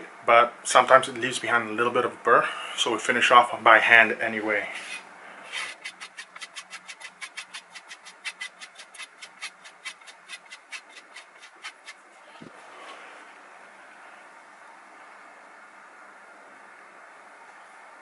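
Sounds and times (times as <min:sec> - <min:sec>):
knife stroking on wooden strop: 0:04.8 - 0:13.0.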